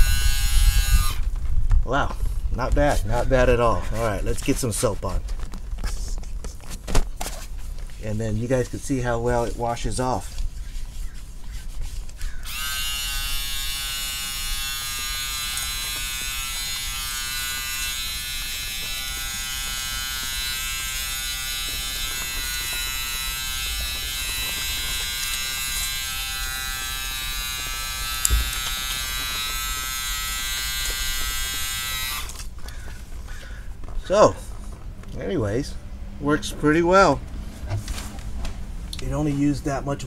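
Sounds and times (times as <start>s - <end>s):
shower pump whining: 12.4s - 32.5s
brief knock: 28.3s - 28.6s.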